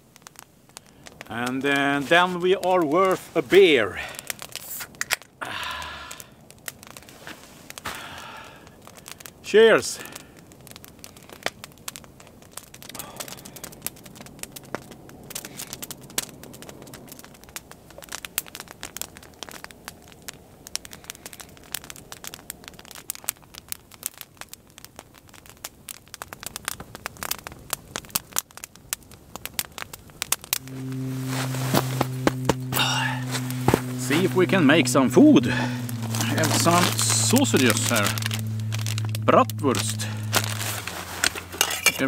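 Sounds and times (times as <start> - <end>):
campfire crackling and popping: 0.0 - 42.0.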